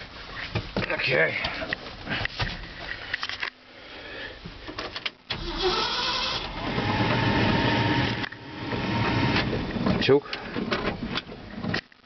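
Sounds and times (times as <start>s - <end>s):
truck engine starting and running: 5.2s - 11.1s.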